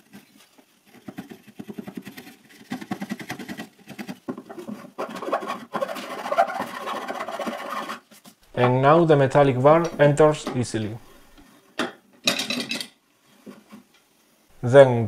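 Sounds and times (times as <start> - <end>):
metal file rasping in wood: 0.9 - 8.0.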